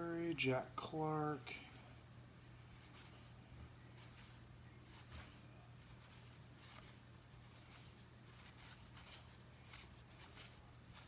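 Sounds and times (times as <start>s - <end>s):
cards flicking and rustling: 3.9s - 11.0s.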